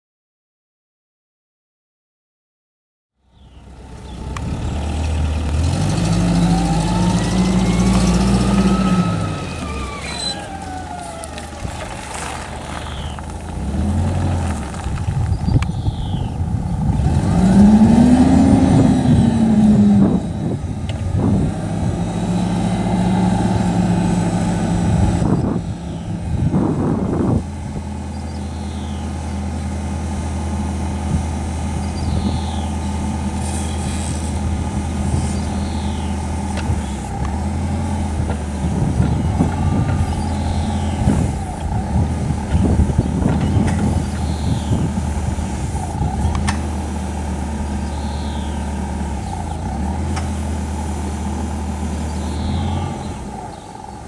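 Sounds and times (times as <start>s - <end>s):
forklift engine running and revving: 3.3s - 54.0s.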